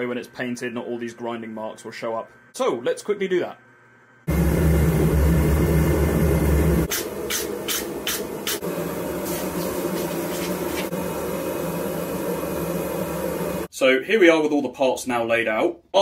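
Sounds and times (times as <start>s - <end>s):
gas burner roaring: 4.3s - 13.7s.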